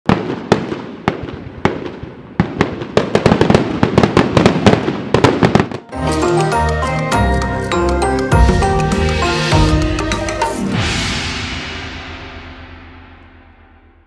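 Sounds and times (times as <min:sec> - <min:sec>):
fireworks bangs and crackles: 0:00.1 - 0:06.3
music: 0:05.9 - 0:14.0.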